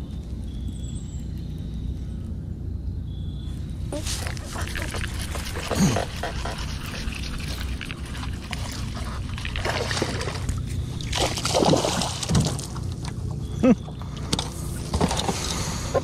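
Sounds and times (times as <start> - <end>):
water splashing from thrashing fish: 7.2 - 13.0.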